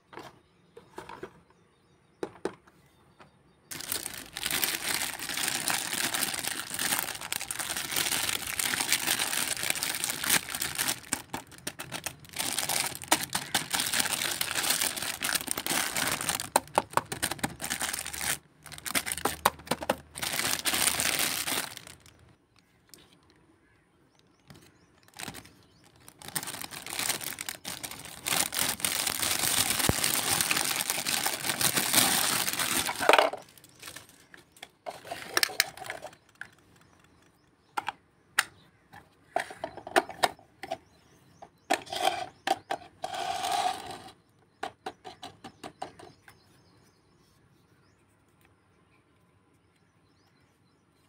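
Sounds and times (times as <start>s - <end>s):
plastic toy pieces clicking: 3.7s - 22.2s
plastic wrapping crinkling: 3.7s - 23.1s, 24.7s - 37.2s
rustling: 3.7s - 23.4s, 24.5s - 36.2s.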